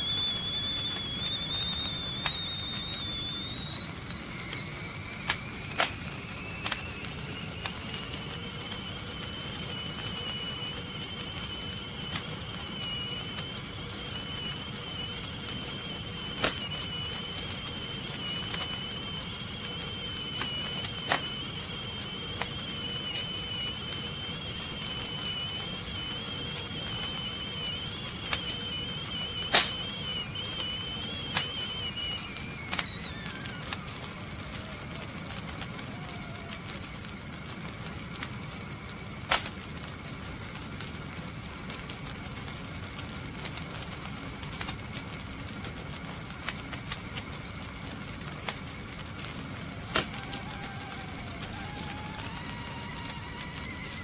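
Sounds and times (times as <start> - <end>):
sharp clicks: 0.0 - 35.9
kettle whistling: 0.0 - 54.0
steady hiss: 0.0 - 54.0.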